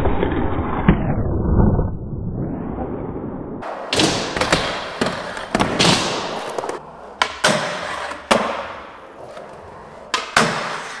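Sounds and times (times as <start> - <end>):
skateboard clacks and landings: 3.6 - 11.0
skateboard wheels rolling: 3.6 - 11.0.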